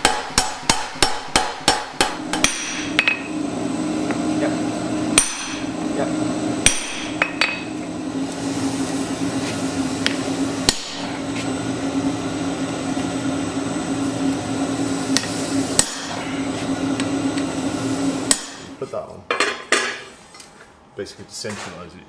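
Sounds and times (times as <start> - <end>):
hammer striking iron on anvil: 0.0 - 3.4, 5.1 - 5.7, 6.6 - 7.7, 10.0 - 11.1, 15.2 - 16.2, 18.2 - 18.7
steady low hum: 0.0 - 22.0.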